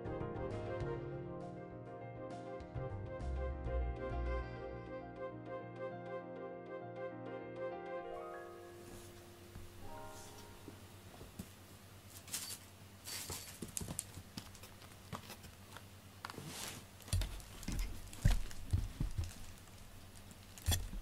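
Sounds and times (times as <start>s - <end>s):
cats rustling and clicking: 12.1s - 20.6s.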